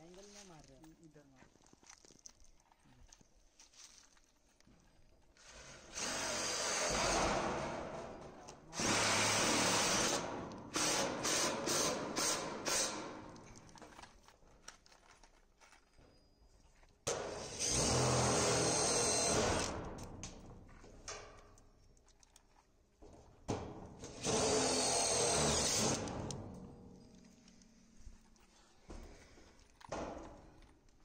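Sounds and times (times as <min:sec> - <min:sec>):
electric power drill running: 0:05.5 - 0:07.3, 0:08.8 - 0:13.1, 0:17.4 - 0:19.8, 0:24.0 - 0:26.3.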